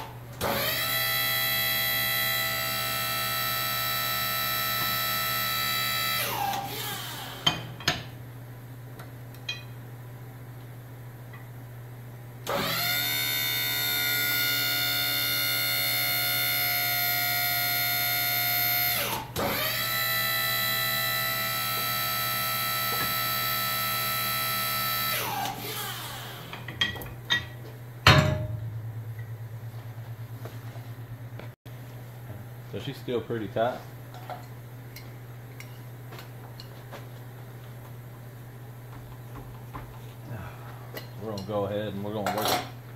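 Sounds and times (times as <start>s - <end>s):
sharp metallic clank: 28.0s - 29.3s.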